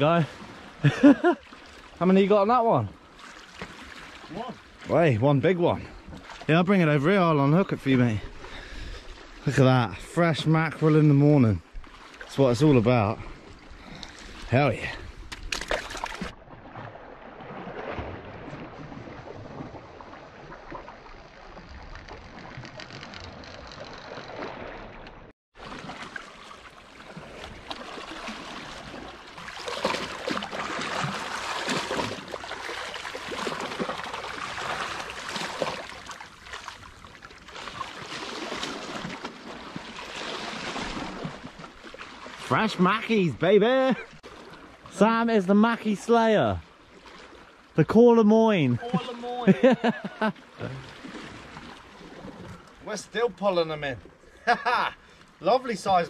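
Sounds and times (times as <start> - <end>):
water lapping against rocks: 10.6 - 45.0, 46.2 - 47.8, 48.9 - 53.0.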